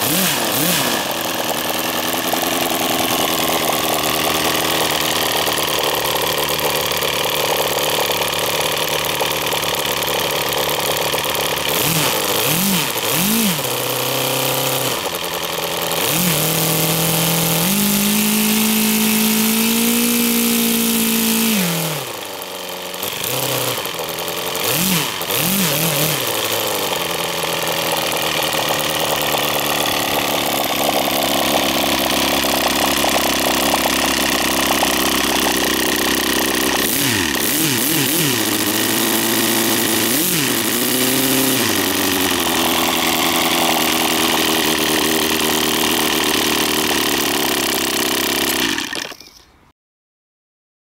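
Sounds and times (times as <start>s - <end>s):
model engine with propeller running: 0.0s - 49.6s.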